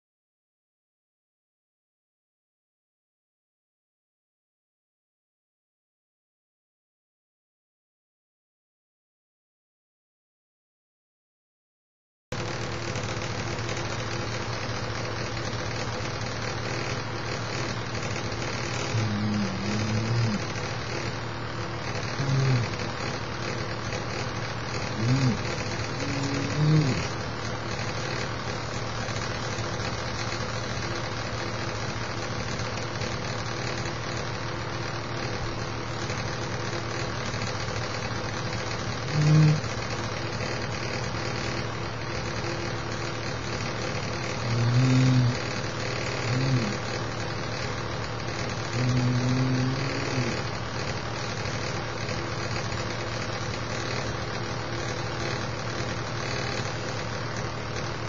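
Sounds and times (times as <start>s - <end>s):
steady hum: 12.4s - 58.0s.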